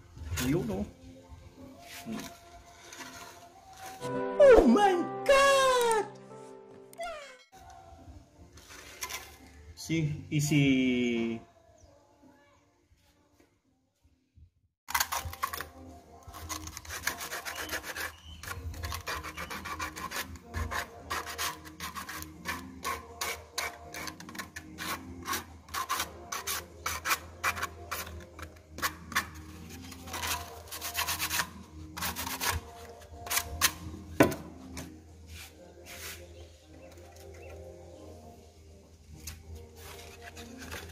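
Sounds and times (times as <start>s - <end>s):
sandpaper rasping on plastic pipe: 16.3s - 33.8s, 35.3s - 36.4s.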